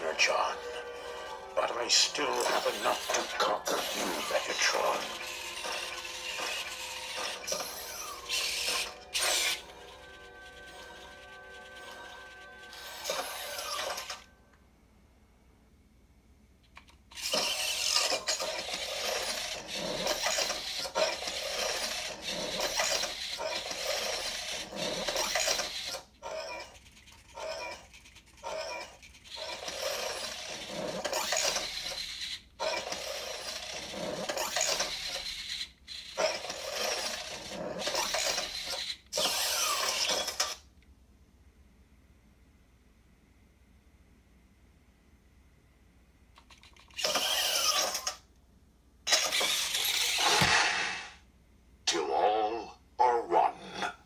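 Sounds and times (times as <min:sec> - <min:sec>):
robot servo motors whirring: 0:02.4 - 0:14.2, 0:17.1 - 0:40.6, 0:46.4 - 0:48.2, 0:49.1 - 0:51.2.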